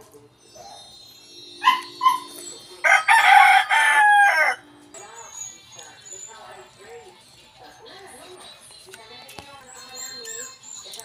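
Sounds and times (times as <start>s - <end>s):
rooster crowing: 2.8s - 4.7s.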